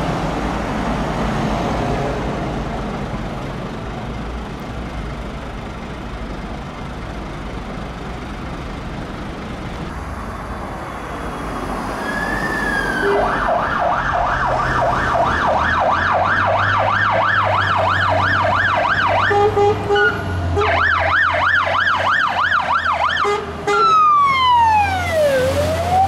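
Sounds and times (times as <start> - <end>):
road traffic rumble: 0.0 - 26.0
diesel engine idling: 2.4 - 11.2
siren: 12.0 - 26.0
vehicle driving past: 24.4 - 26.0.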